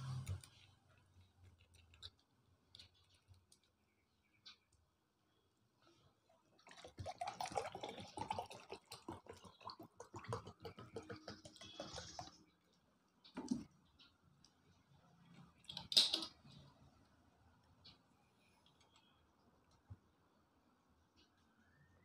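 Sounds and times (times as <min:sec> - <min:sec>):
water pouring into a glass: 0:06.6 - 0:12.4.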